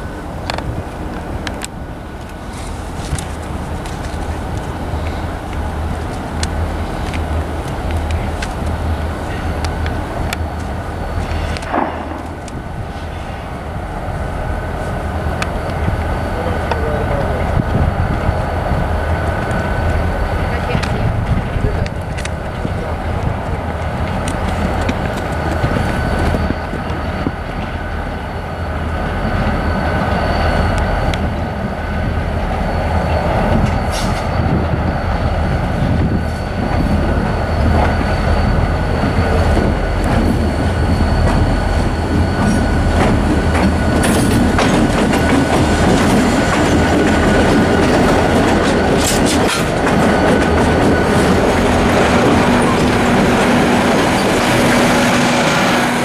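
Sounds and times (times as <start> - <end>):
locomotive engines rumbling: 0.0 - 56.0
wheels clicking over rail joints: 20.6 - 27.8, 42.1 - 54.6.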